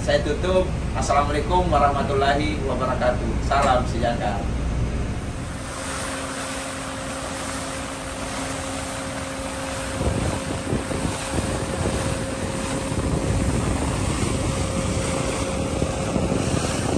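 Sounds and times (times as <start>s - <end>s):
steady low hum: 0.0s - 16.9s
rushing sea water: 5.2s - 16.9s
wind buffeting microphone: 5.2s - 16.9s.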